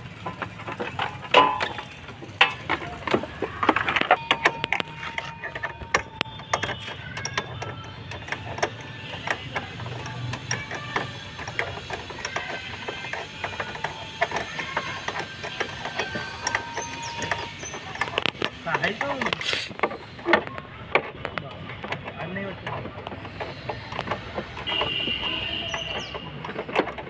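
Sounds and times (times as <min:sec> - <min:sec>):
ratchet wrench clicking: 0:00.0 - 0:20.4.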